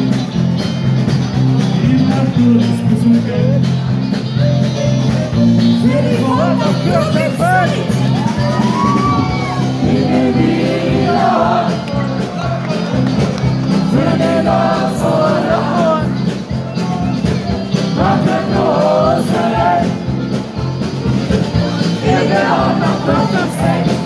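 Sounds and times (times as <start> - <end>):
live band playing party music: 0.0 - 24.0.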